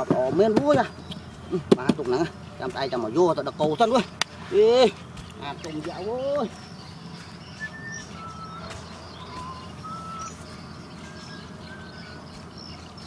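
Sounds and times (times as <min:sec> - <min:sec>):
birds whistling: 0:00.0 - 0:13.0
low background rumble: 0:00.0 - 0:13.0
high bird chirps: 0:05.0 - 0:13.0.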